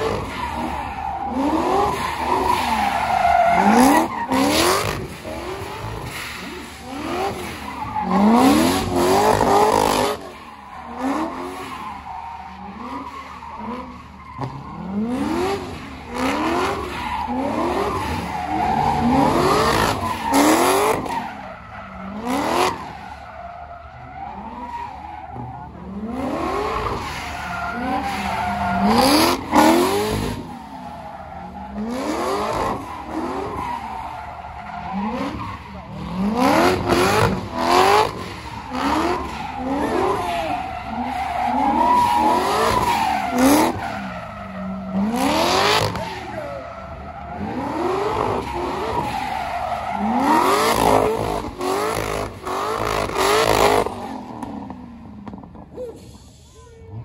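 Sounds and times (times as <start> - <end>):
car engine revving: 0.0 - 12.1, 25.4 - 55.7.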